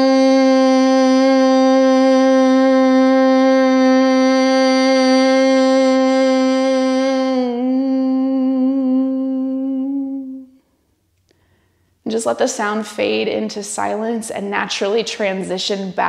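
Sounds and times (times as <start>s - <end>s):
woman humming a long note: 0.0s - 10.6s.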